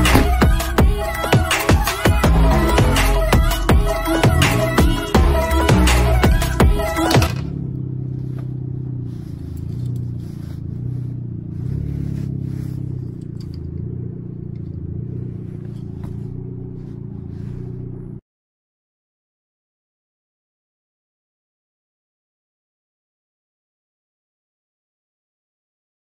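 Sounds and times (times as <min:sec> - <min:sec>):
car engine idling: 0:00.0 - 0:18.2.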